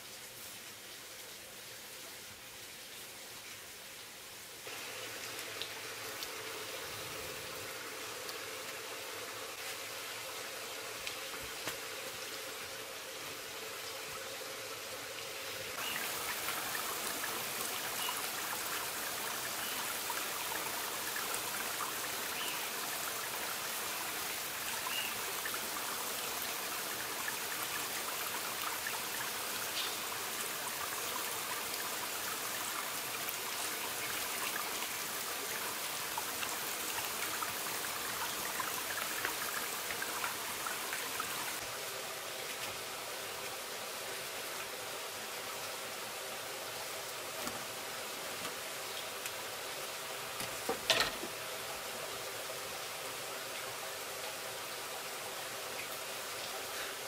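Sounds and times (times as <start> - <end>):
steady rain hiss: 0.0 - 57.0
water drips: 4.7 - 14.2, 15.2 - 41.7, 47.0 - 49.6.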